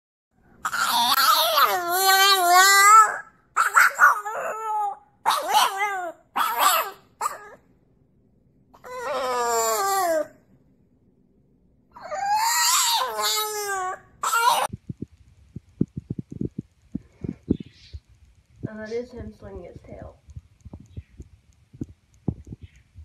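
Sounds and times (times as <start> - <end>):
dog howling: 0.6 - 7.6, 8.8 - 10.4, 11.9 - 14.7.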